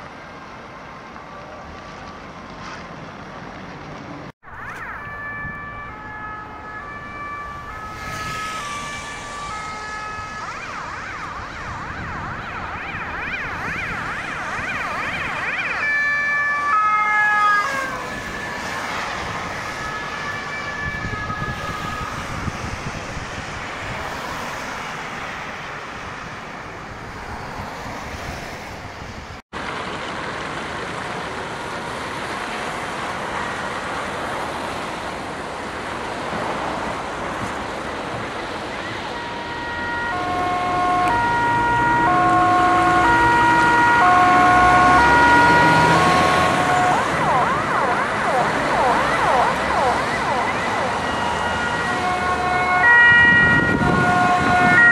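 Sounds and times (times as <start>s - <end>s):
road traffic: 0.0s - 54.9s
two-tone sirens: 4.4s - 29.4s, 36.8s - 54.9s.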